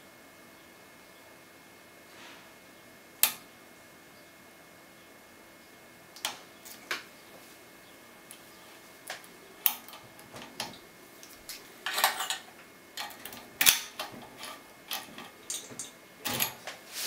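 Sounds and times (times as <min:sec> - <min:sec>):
key scraping over pins: 0:09.1 - 0:10.8, 0:11.4 - 0:16.9
key clicking in lock pins: 0:11.8 - 0:16.7.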